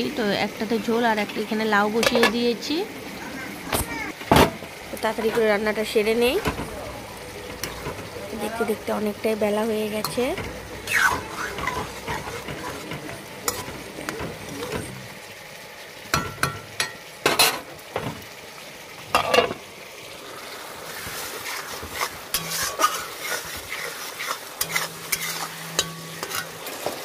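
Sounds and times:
frying sizzle: 0:00.0 - 0:27.0
metal clanks of spatula and lid: 0:02.0 - 0:02.4, 0:07.5 - 0:08.1, 0:10.0 - 0:15.0, 0:16.1 - 0:18.2, 0:19.1 - 0:19.6, 0:22.3 - 0:23.4, 0:24.2 - 0:27.0
metal spatula scraping a pan: 0:07.5 - 0:08.6, 0:09.9 - 0:15.0, 0:17.3 - 0:17.7, 0:20.9 - 0:27.0.

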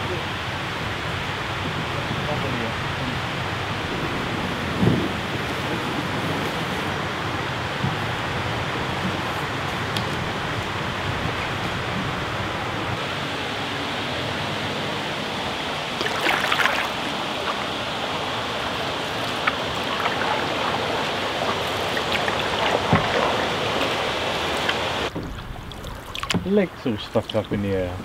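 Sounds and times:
river water rushing: 0:00.0 - 0:28.0
canoe paddle splashing: 0:15.5 - 0:28.0.

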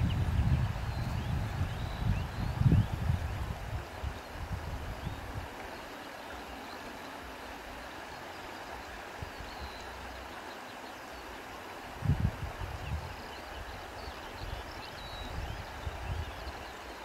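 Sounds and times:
wind buffeting microphone: 0:00.0 - 0:05.6, 0:11.9 - 0:16.6
wind hiss: 0:00.0 - 0:17.0.

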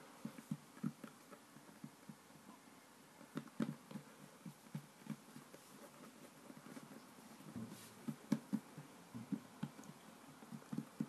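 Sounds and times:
hands patting dough on wooden table: 0:03.2 - 0:11.0.

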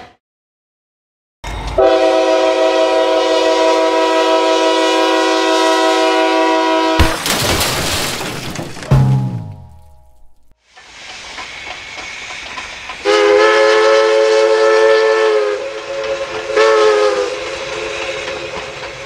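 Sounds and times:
train horn chord: 0:01.8 - 0:07.0, 0:13.1 - 0:17.4
sharp thump: 0:07.0 - 0:07.7, 0:08.6 - 0:10.5.

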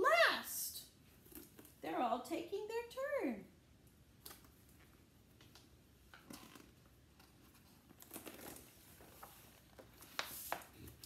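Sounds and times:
paper page rustling: 0:06.5 - 0:11.0.

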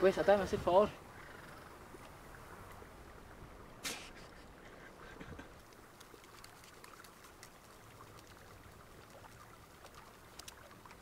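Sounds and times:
soft ticks: 0:05.4 - 0:07.6, 0:09.8 - 0:11.0.

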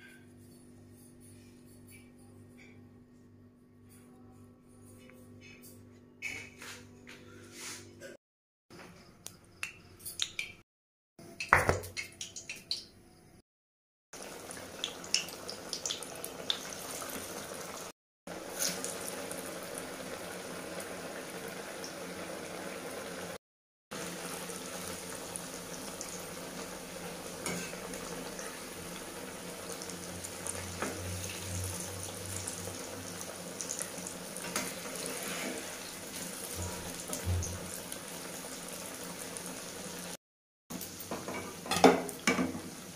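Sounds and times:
food deep-frying in oil: 0:14.2 - 0:42.9
metal spatula in oil: 0:27.4 - 0:28.6, 0:33.8 - 0:37.4.

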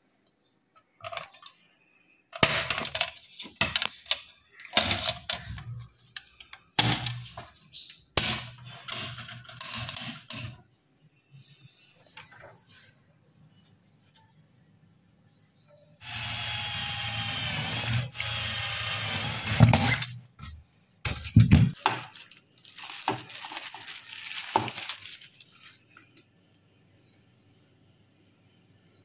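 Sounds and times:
electric drill whining: 0:16.0 - 0:20.0
plastic bag crinkling: 0:21.1 - 0:26.2.

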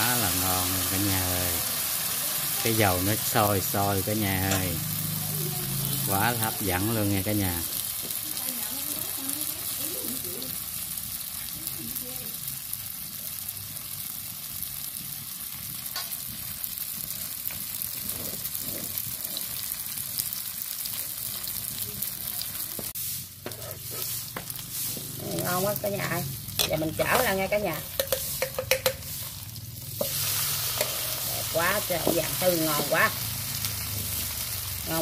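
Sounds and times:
batter sizzling in oil: 0:00.0 - 0:35.0
metal spatula scraping pan: 0:23.0 - 0:33.2.

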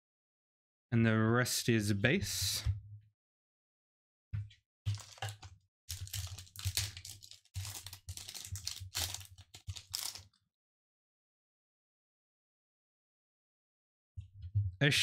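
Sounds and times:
foil wrapper crinkling and tearing: 0:04.9 - 0:10.4.

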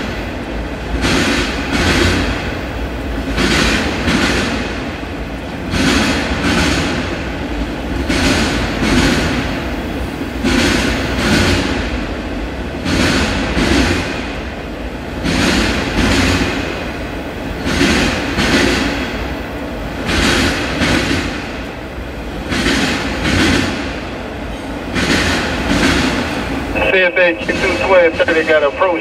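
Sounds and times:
train wheels clacking: 0:00.0 - 0:12.1, 0:12.7 - 0:29.0
freight train rumbling past: 0:00.0 - 0:29.0.

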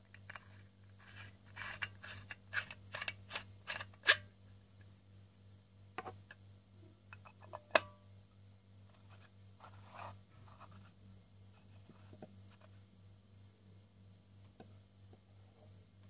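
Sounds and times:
plastic scraping on plastic: 0:00.2 - 0:04.2.

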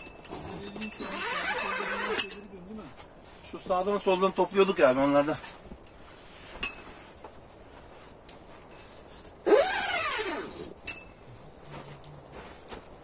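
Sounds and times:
sharp ringing clink: 0:00.0 - 0:02.6, 0:10.5 - 0:11.2.

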